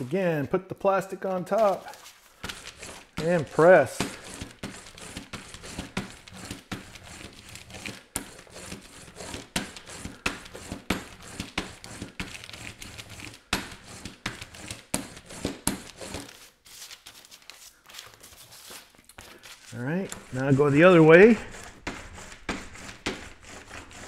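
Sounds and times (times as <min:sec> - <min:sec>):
roller rolling over plastic sheet: 0:01.6 - 0:16.4.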